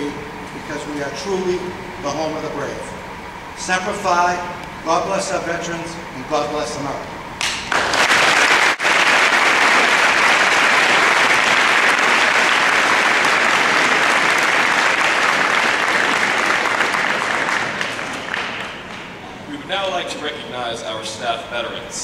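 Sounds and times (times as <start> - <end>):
audience applauding: 7.4 - 19.2.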